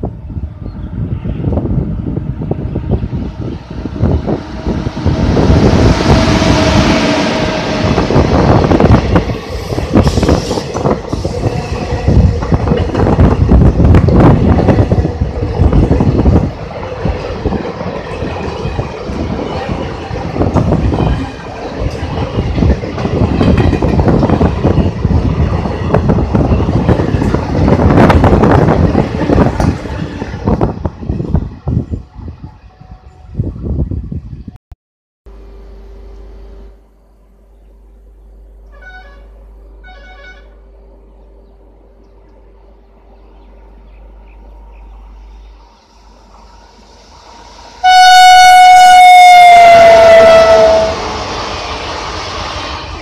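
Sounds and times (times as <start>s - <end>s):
train rushing past: 0.0s - 34.6s, 38.8s - 53.0s
wheels clattering on rails: 8.1s - 30.6s.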